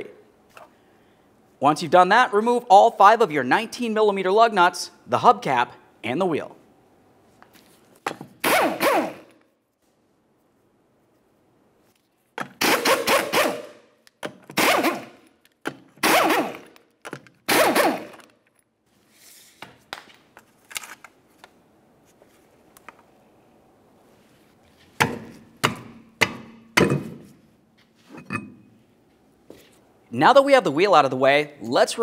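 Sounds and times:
impact gun whirring and hammering: 0:08.0 - 0:09.4, 0:12.4 - 0:18.3, 0:25.0 - 0:27.4.

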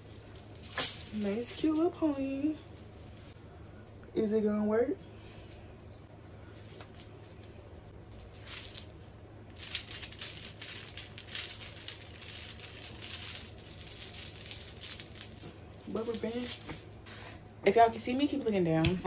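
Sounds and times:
low steady hum: 0:00.0 - 0:19.0
hair rustling and swishing: 0:08.2 - 0:17.0.

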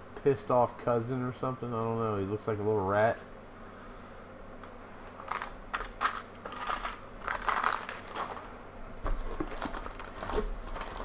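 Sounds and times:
foil wrapper crinkling: 0:05.2 - 0:11.0.

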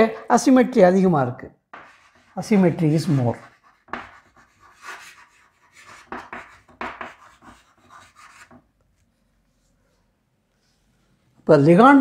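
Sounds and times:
pen scratching on paper: 0:01.7 - 0:08.6.

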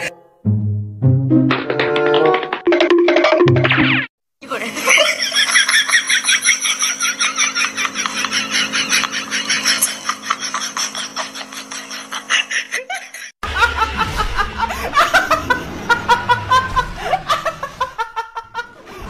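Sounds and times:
young woman laughing hard: 0:04.6 - 0:19.0.

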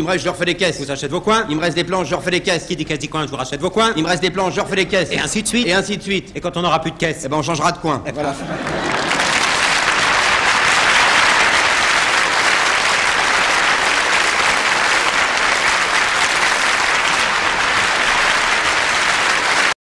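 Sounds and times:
studio audience applauding: 0:08.6 - 0:19.8.

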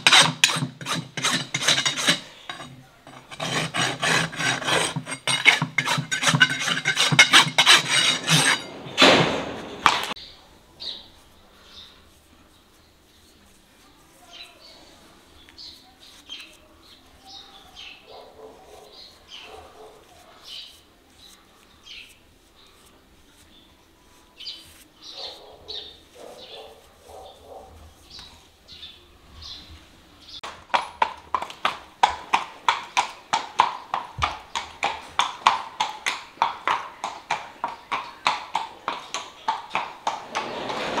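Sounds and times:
horse hooves clip-clopping on concrete: 0:00.0 - 0:10.2, 0:30.4 - 0:41.0
small birds chirping: 0:10.1 - 0:30.5.

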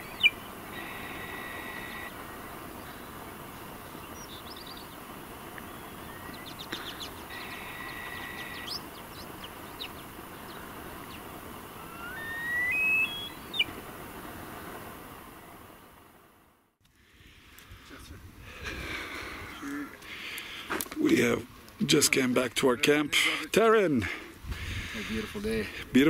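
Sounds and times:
open-air hiss: 0:00.0 - 0:26.0
whistled bird calls: 0:05.6 - 0:10.0, 0:11.8 - 0:13.7
rising whistle: 0:11.8 - 0:13.6.

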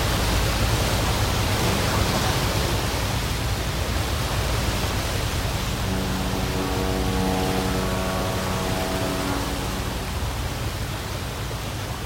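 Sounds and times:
churning wake water rushing: 0:00.0 - 0:12.0
low rumble: 0:05.4 - 0:11.5.

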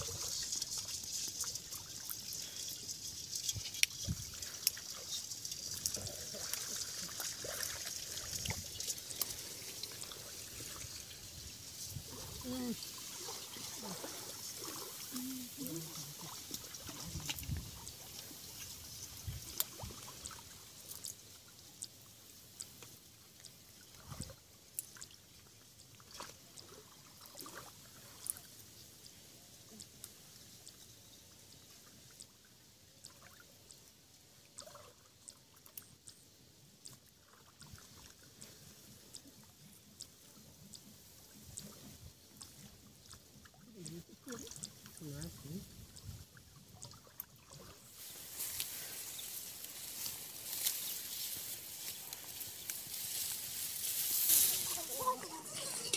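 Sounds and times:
shallow water sloshing: 0:00.0 - 0:20.6
small water splashes: 0:00.0 - 0:55.9.

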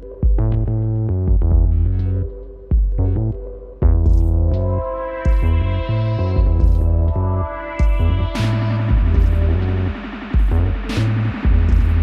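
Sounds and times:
pulsing synth bass: 0:00.0 - 0:12.0
hi-hat hits: 0:07.8 - 0:12.0.

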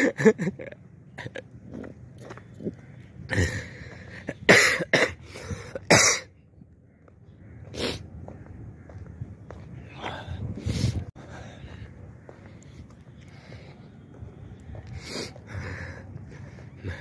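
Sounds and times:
person coughing: 0:04.4 - 0:05.2, 0:05.8 - 0:06.3.

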